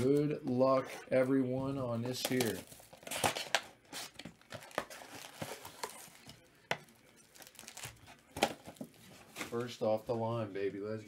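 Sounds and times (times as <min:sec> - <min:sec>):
card packs rustling and crinkling: 0:01.9 - 0:10.4.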